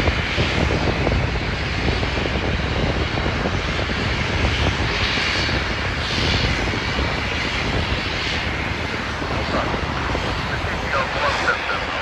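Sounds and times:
turboprop engines running: 0.0s - 12.0s
high pulsing whine: 5.6s - 12.0s.

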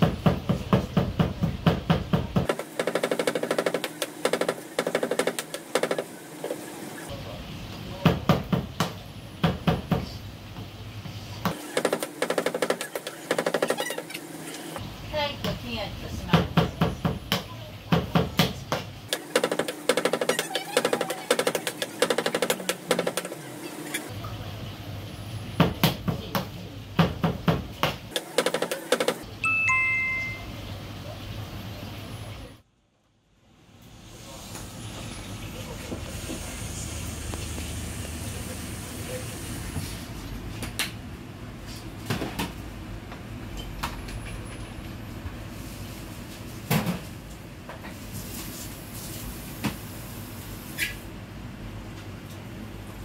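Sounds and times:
low restaurant rumble: 6.1s - 11.8s, 22.7s - 28.2s, 29.2s - 53.0s.

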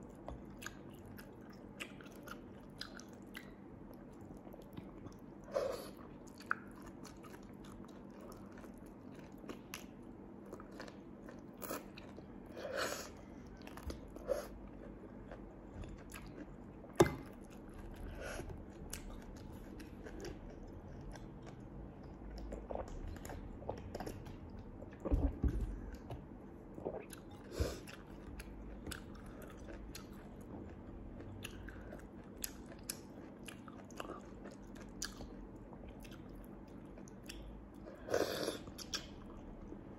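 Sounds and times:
chewing and biting food: 13.5s - 37.8s.

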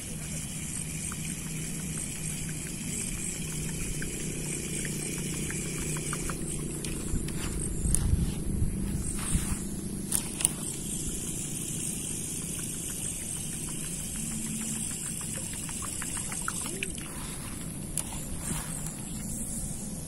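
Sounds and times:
fishing reel ticking: 0.0s - 20.0s
sharp clicks: 0.1s - 8.2s, 10.0s - 17.1s.

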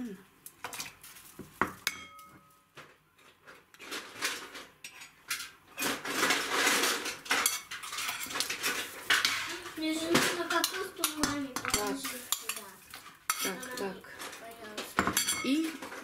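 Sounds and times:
potato pieces clattering into pot: 3.8s - 16.0s
kitchenware clinks: 15.0s - 16.0s.

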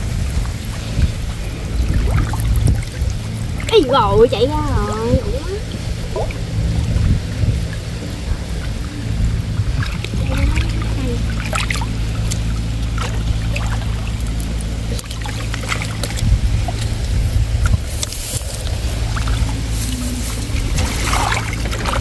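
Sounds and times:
water sloshing and splashing: 0.0s - 22.0s.

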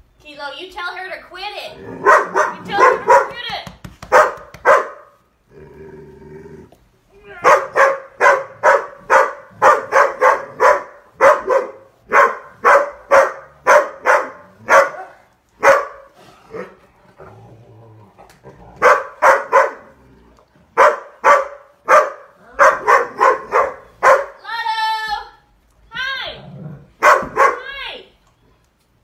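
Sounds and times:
dogs barking: 2.0s - 3.4s, 4.1s - 5.2s, 7.4s - 16.8s, 18.8s - 20.0s, 20.8s - 24.4s, 27.0s - 27.7s.

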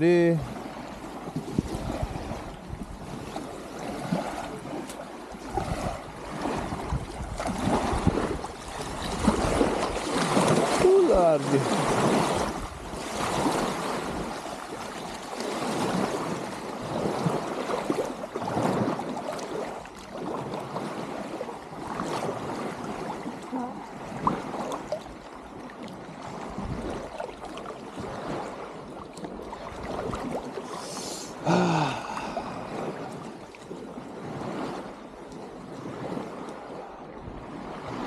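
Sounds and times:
water rushing: 0.0s - 37.1s
wind noise: 1.3s - 4.4s, 5.4s - 14.4s, 26.4s - 27.0s.

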